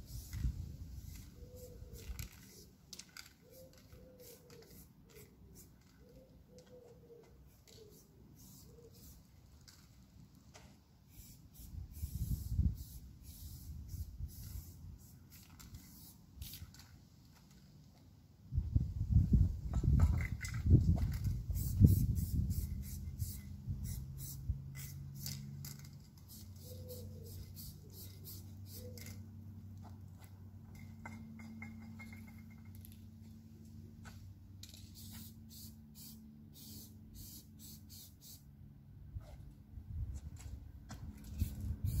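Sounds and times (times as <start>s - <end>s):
spray paint can hissing: 0.0s - 6.1s, 7.5s - 9.9s, 11.1s - 17.0s, 20.2s - 29.2s, 34.6s - 38.4s, 41.2s - 42.0s.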